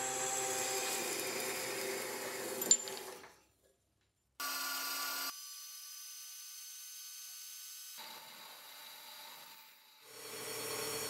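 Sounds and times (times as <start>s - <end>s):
high whine of cutting tool: 0.0s - 2.6s, 4.4s - 11.0s.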